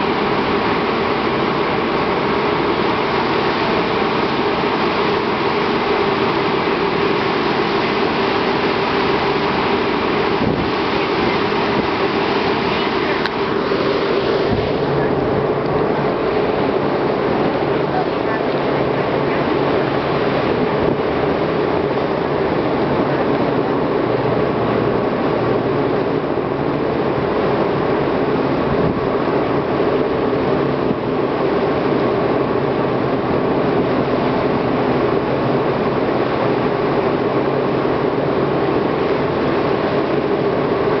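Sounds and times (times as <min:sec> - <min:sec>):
boat diesel engines droning: 0:00.0 - 0:41.0.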